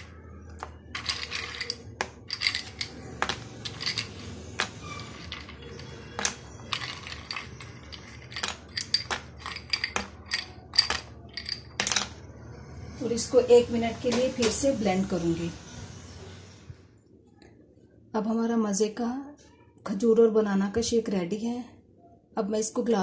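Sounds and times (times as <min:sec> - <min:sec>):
ice cubes clinking against glass: 0:00.0 - 0:12.2.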